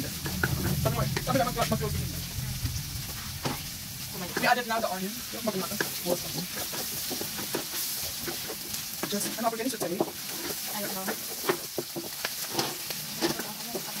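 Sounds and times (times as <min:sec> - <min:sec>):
food sizzling in a frying pan: 0:00.0 - 0:14.0
spatula knocking and scraping pan: 0:05.4 - 0:14.0.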